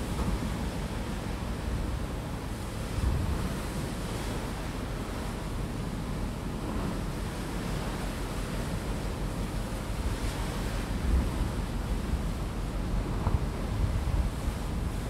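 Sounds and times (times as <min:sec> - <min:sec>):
wind buffeting microphone: 0:00.0 - 0:05.0, 0:09.8 - 0:15.0
wind and sea water rushing: 0:00.0 - 0:15.0.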